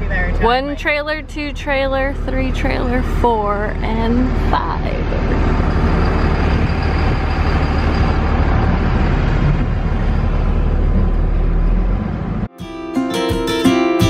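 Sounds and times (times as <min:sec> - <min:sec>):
vehicle engine rumble: 0:00.0 - 0:12.5
strummed acoustic guitar music: 0:12.5 - 0:14.0.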